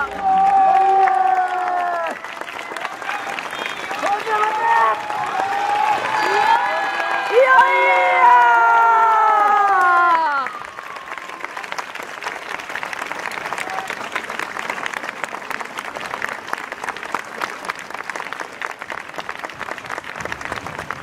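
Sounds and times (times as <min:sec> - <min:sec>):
crowd applauding: 0:00.0 - 0:21.0.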